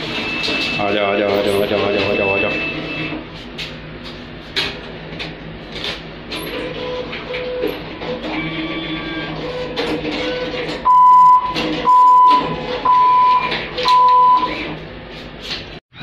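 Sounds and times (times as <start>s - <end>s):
cash machine beeps: 0.0s - 3.2s, 6.5s - 14.7s
cash machine mechanism whirring: 0.0s - 3.3s, 5.6s - 14.8s.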